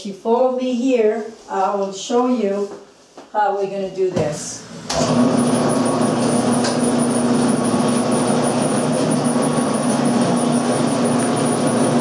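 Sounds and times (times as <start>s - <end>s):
meat grinder motor humming: 4.6s - 12.0s.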